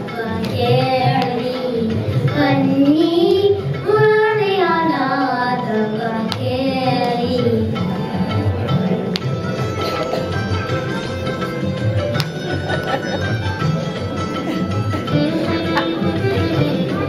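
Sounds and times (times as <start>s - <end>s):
girls singing into microphones: 0.0s - 9.0s.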